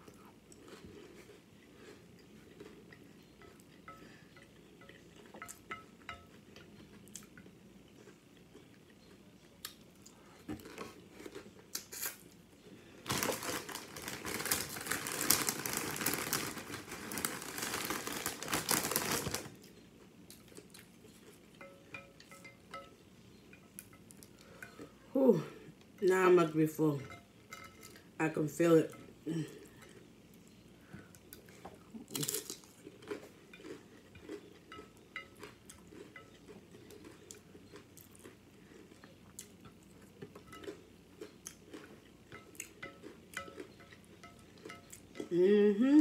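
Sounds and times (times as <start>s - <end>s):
tortilla chips crunching: 8.0s - 22.8s, 31.4s - 45.3s
loud crinkling and crunching: 13.0s - 19.6s.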